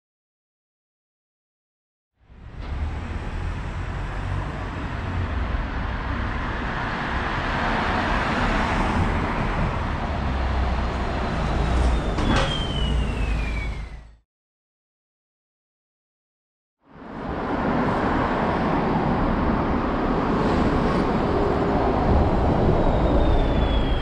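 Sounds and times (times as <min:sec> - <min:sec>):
bus engine rumble: 0:02.3 - 0:14.2.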